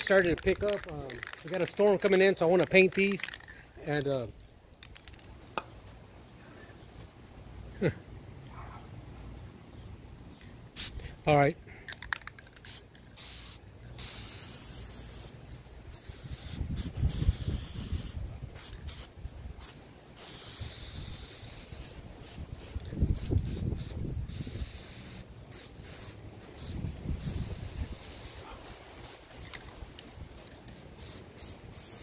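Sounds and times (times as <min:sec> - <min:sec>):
spray paint can hissing: 0:00.0 - 0:04.1, 0:10.8 - 0:11.0, 0:12.0 - 0:29.7, 0:30.3 - 0:32.0
wind buffeting microphone: 0:16.4 - 0:19.5, 0:22.5 - 0:24.6.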